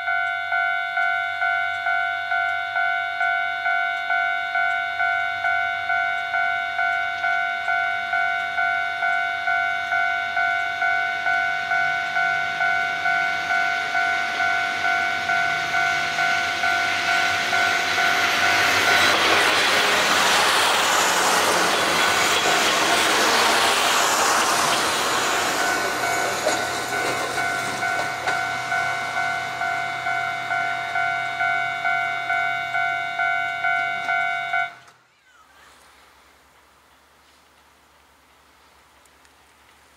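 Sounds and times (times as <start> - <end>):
level crossing bell dinging: 0.0 - 19.2, 25.5 - 34.8
diesel railcar passing: 0.0 - 39.9.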